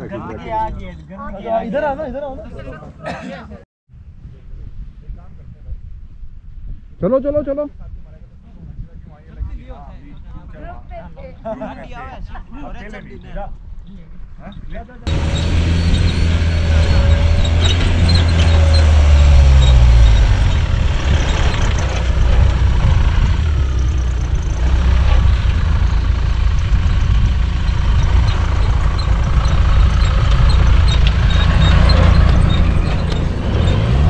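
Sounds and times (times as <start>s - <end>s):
engine droning: 15.1s - 34.0s.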